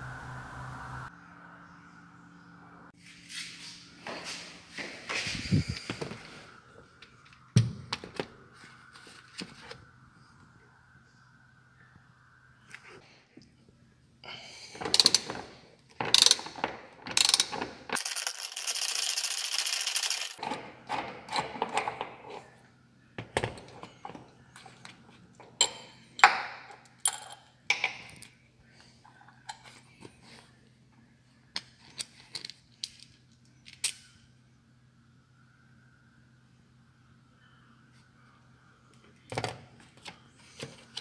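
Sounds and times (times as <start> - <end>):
ratchet wrench clicking: 16.1 - 16.4, 17.2 - 17.5.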